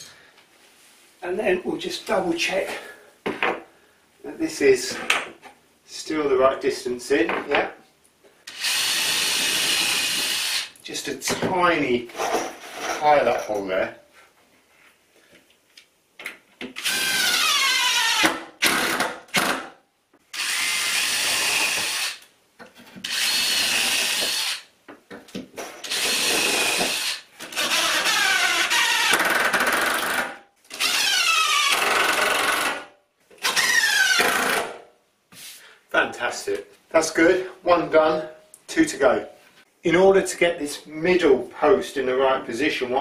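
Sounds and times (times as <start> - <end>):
cordless drill drilling into wood: 8.5 - 10.7, 16.8 - 19.6, 20.3 - 22.2, 23.0 - 24.6, 25.8 - 32.8, 33.4 - 34.7.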